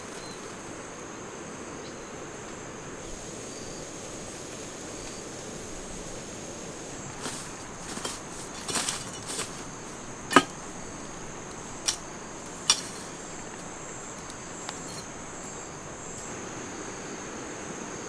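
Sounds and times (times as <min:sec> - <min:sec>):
insects chirring: 0:00.0 - 0:18.0
sharp knocks: 0:10.3 - 0:10.8.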